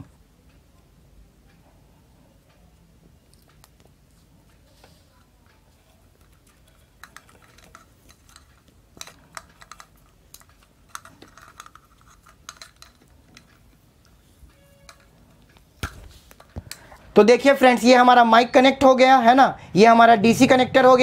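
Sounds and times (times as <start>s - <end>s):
electrical tape crackling: 2.8s - 18.2s.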